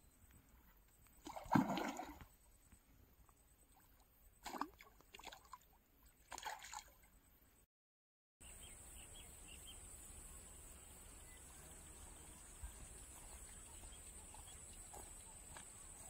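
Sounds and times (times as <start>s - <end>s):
fish splashing in water: 1.2s - 2.3s, 4.4s - 5.6s, 6.3s - 7.0s.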